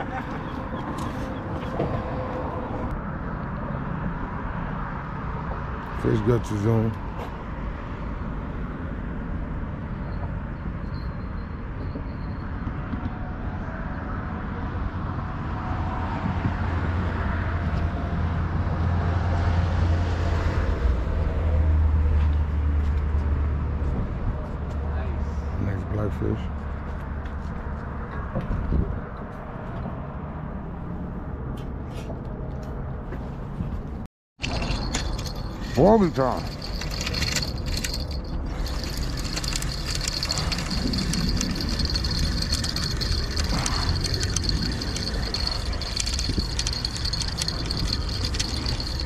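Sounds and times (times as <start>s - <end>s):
car traffic rumble: 13.2s - 49.0s
fishing reel cranking: 36.4s - 49.0s.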